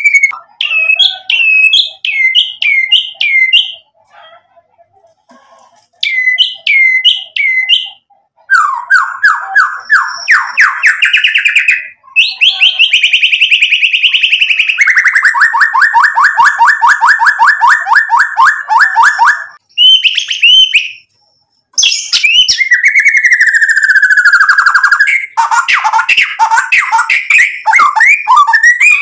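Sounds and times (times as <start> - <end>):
bird singing: 0.0 - 4.0, 6.0 - 29.0.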